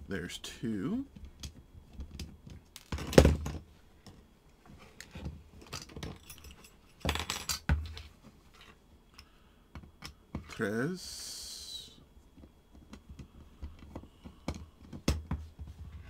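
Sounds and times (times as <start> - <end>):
small metal clinks and clicks: 5.6 - 7.7.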